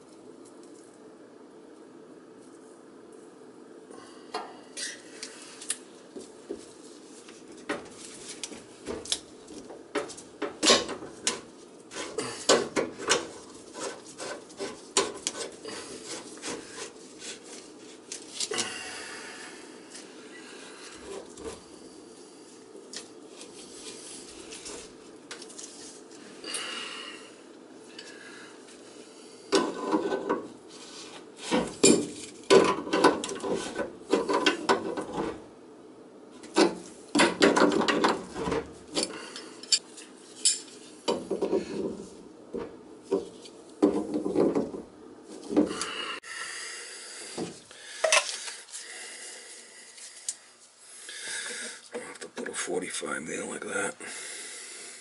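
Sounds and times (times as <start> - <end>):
scraping and rubbing: 6.2 - 18.5, 20.8 - 26.2, 29.6 - 35.5
clatter of plastic pipe parts: 31.4 - 35.4, 36.4 - 45.9, 47.4 - 48.6.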